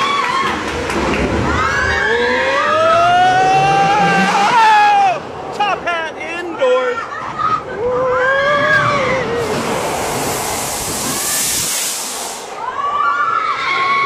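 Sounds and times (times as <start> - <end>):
people screaming and whooping: 0.0 - 5.3, 7.0 - 9.9, 12.4 - 14.0
spraying water rushing: 9.4 - 12.7.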